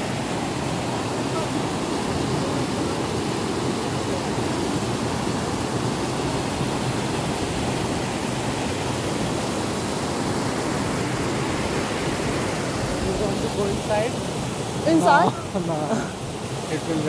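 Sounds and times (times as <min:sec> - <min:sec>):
creek water rushing over rocks: 0:00.0 - 0:17.0.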